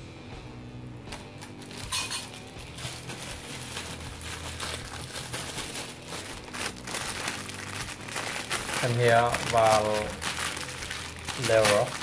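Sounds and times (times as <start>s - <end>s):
metal clink: 1.8s - 2.3s
soup boiling with crackles: 2.4s - 12.0s.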